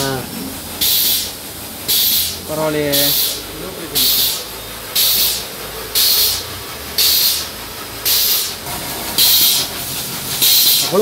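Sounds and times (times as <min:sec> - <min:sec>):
air grease gun hissing spurts: 0:00.8 - 0:03.4, 0:04.0 - 0:08.6, 0:09.2 - 0:09.7, 0:10.3 - 0:11.0.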